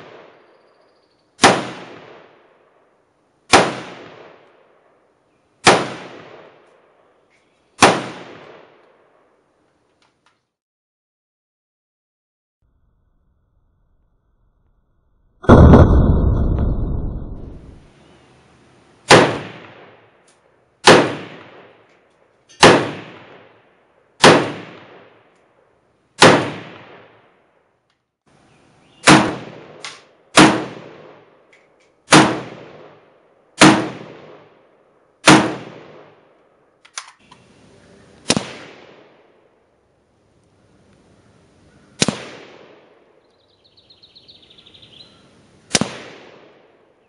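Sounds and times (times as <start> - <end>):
rifle shots echoing: 1.4 - 2.8, 3.5 - 5.0, 5.6 - 7.1, 7.8 - 9.3, 15.4 - 16.2, 19.1 - 20.0, 20.8 - 21.9, 22.6 - 23.6, 24.2 - 25.2, 26.2 - 27.4, 29.0 - 31.4, 32.1 - 36.3, 38.2 - 39.6, 42.0 - 43.1, 45.7 - 46.9.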